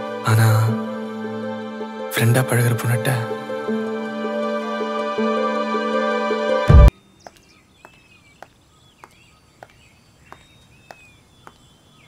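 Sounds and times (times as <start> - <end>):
music: 0.0 - 6.9
faint bird chirps: 6.9 - 12.0
footsteps on a path: 7.2 - 11.7.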